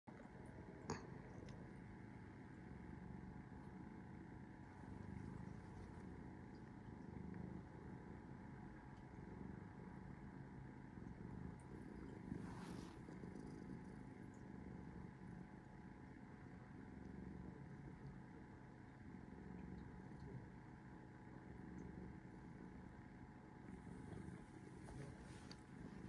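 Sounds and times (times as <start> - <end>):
cat purring: 0.1 - 26.0.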